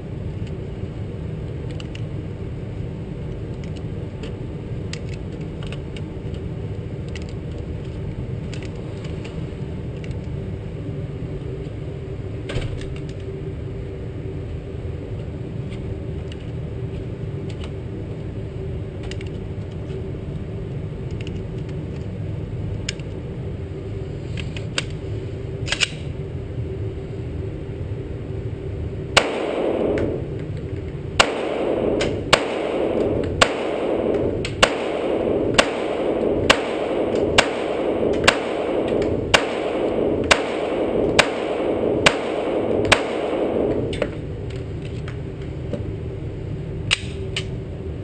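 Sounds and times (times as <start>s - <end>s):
steady low hum: 0.0s - 48.0s
pistol shots echoing indoors: 29.2s - 44.3s.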